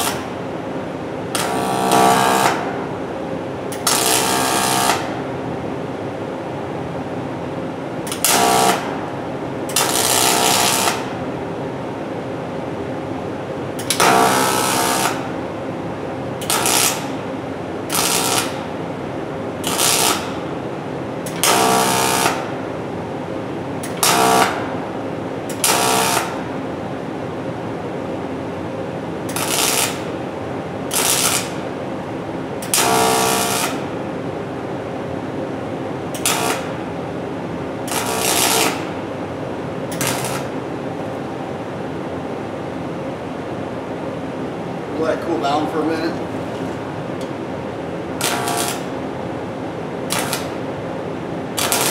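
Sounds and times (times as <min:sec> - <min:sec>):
welding arc buzzing: 0:00.0 - 0:00.3, 0:01.3 - 0:02.8, 0:03.7 - 0:05.3, 0:08.0 - 0:09.0, 0:09.7 - 0:11.2, 0:13.8 - 0:15.4, 0:16.4 - 0:17.3, 0:17.9 - 0:18.7, 0:19.6 - 0:20.4, 0:21.3 - 0:22.5, 0:23.8 - 0:24.7, 0:25.5 - 0:26.4, 0:29.3 - 0:30.2, 0:30.8 - 0:31.7, 0:32.6 - 0:33.9, 0:36.1 - 0:36.9, 0:37.8 - 0:39.1, 0:39.9 - 0:40.6, 0:48.2 - 0:49.0, 0:50.0 - 0:50.7, 0:51.6 - 0:51.9
steady hum: 0:00.0 - 0:51.9.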